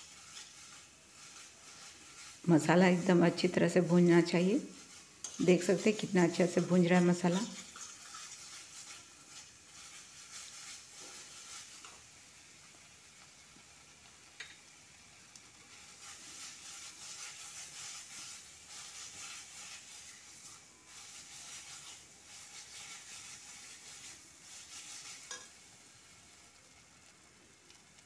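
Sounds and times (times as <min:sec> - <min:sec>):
metal spatula scraping a pan: 0:00.0 - 0:12.2, 0:15.6 - 0:26.1
masala sizzling in a pan: 0:00.0 - 0:28.0.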